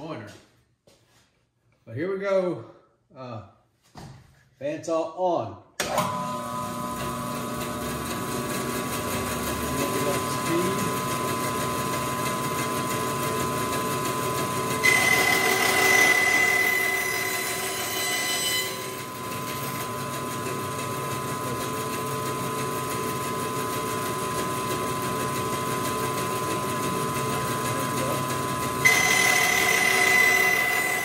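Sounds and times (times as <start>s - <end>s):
bandsaw running: 5.8s - 31.0s
saw blade cutting wood: 8.0s - 11.2s, 14.0s - 31.0s.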